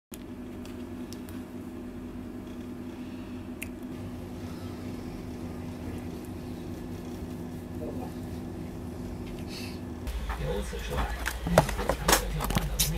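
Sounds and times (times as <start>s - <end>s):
low electrical hum: 0.1s - 12.9s.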